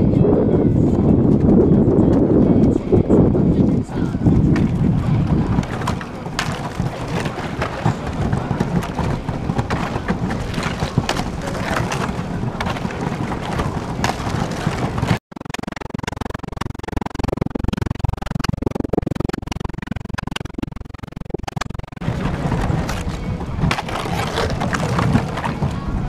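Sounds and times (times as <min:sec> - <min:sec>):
thin ice crackling and crunching: 0:23.7 - 0:25.5.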